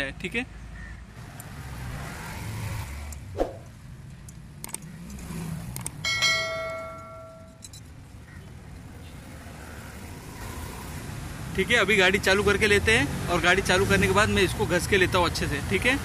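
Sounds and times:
metal nuts and washers clinking: 0:05.8 - 0:07.9
struck metal ringing: 0:06.0 - 0:07.8.

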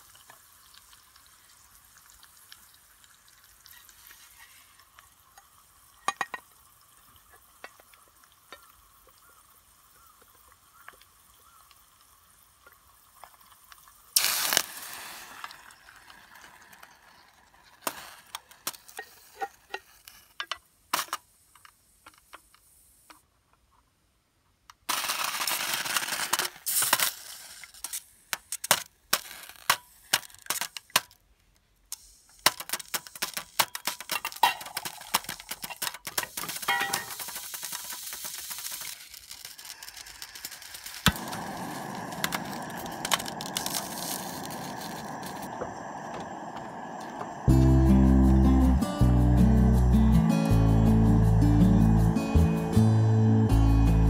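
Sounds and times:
bacon sizzling: 0:00.0 - 0:08.0, 0:13.0 - 0:18.2, 0:32.7 - 0:54.0
water pouring: 0:00.0 - 0:09.1, 0:12.5 - 0:19.2, 0:33.8 - 0:48.9
water hissing in hot fat: 0:00.0 - 0:20.1, 0:32.0 - 0:54.0.

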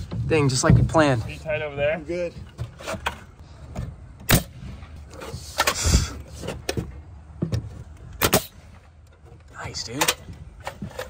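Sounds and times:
nail gun shots: 0:04.3 - 0:04.7, 0:08.2 - 0:08.6.

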